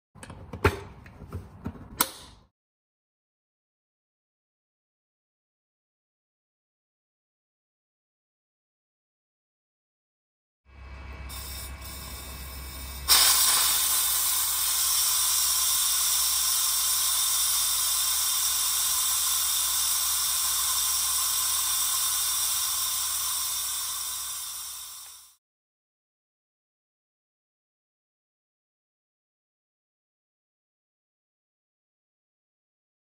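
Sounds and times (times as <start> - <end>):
loud gas hiss: 11.3 - 25.4.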